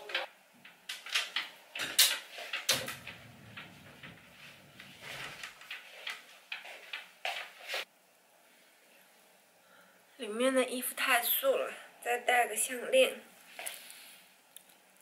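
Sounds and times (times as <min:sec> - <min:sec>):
clothes and hangers rustling: 0:00.0 - 0:07.9.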